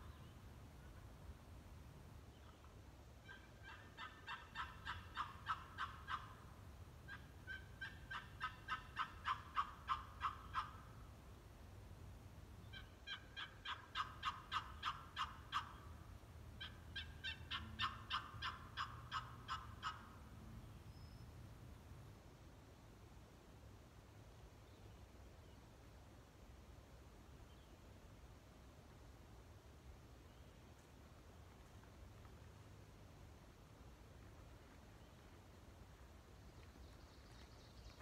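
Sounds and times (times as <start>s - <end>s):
turkey call raspy hen yelps: 3.2s - 6.4s, 7.1s - 10.9s, 12.7s - 15.8s, 16.6s - 20.1s.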